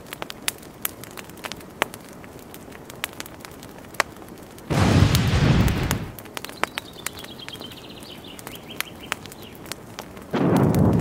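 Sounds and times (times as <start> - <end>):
sharp crackles: 0.0 - 11.0
loud rumbling burst: 4.7 - 6.2, 10.4 - 11.0.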